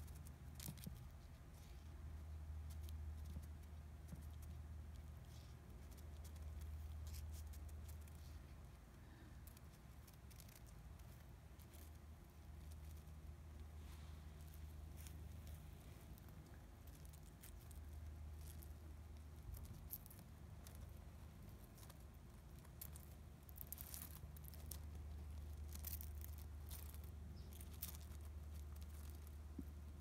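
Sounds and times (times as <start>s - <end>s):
low steady rumble: 0.0s - 30.0s.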